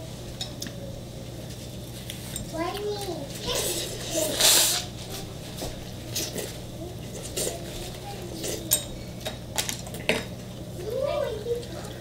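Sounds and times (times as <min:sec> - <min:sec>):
noodles being slurped: 0:03.4 - 0:05.0
chopsticks clicking against dishes: 0:08.4 - 0:10.3.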